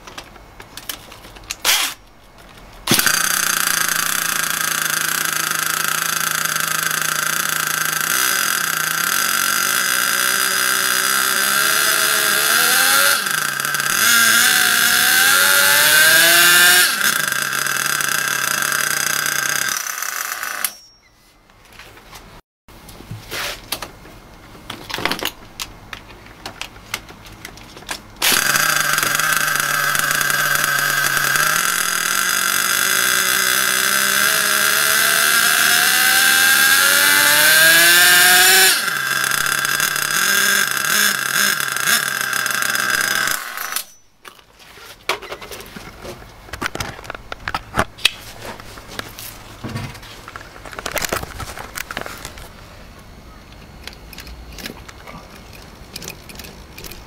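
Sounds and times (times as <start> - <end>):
nitro engine high buzz: 2.9 - 20.9, 28.2 - 44.1.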